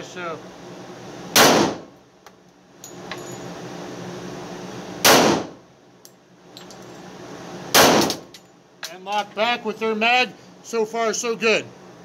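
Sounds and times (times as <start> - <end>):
pistol shot with echo: 1.4 - 1.8, 5.0 - 5.6, 7.8 - 8.2.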